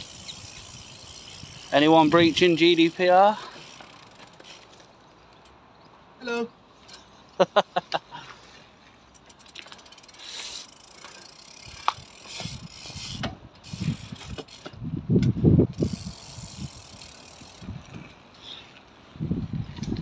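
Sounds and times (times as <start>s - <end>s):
bicycle freewheel hub ticking: 0.0s - 4.7s, 9.0s - 14.8s, 15.7s - 19.1s
wind buffeting microphone: 11.6s - 18.3s, 18.9s - 20.0s.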